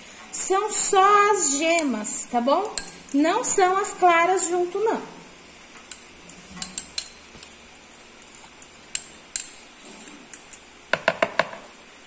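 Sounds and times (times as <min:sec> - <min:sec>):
metal fork clinking against bowls: 0:02.6 - 0:03.1, 0:06.6 - 0:07.5, 0:08.6 - 0:09.6.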